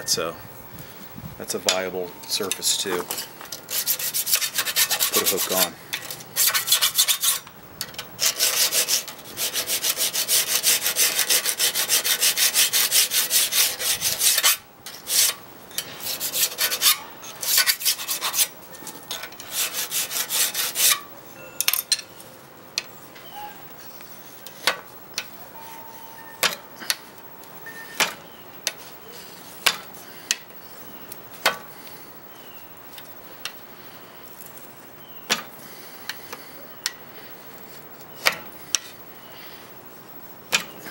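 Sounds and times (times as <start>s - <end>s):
steel tool scraping blade edge: 1.7s - 7.5s, 8.2s - 21.1s.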